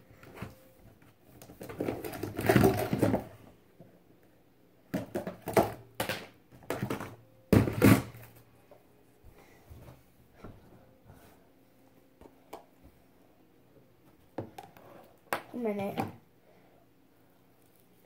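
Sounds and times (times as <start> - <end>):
objects rustling and knocking: 0.1 - 3.9, 4.9 - 8.8.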